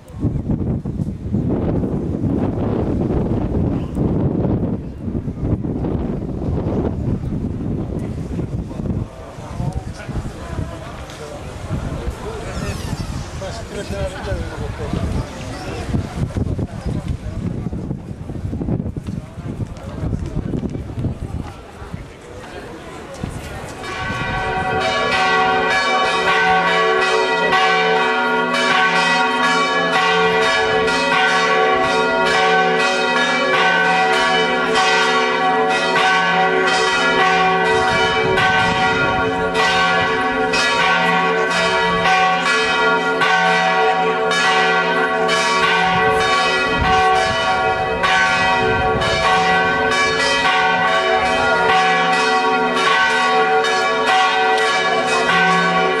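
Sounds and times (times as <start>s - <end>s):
church bells pealing: 23.6s - 56.0s.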